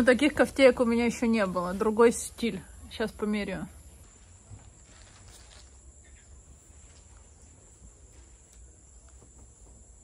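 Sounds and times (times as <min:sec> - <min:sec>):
crickets chirring: 0:00.0 - 0:10.0
faint rustles or clicks: 0:04.0 - 0:09.8.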